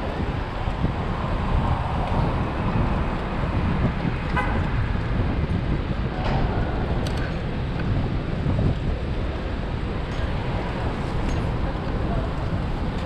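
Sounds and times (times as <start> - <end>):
low rumble of street traffic: 0.0 - 13.0.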